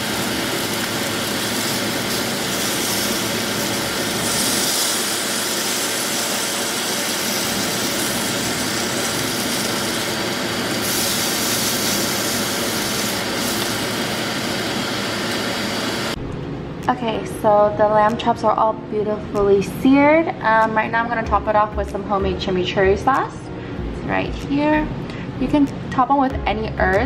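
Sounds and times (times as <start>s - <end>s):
meat sizzling in oil: 0.0s - 16.2s.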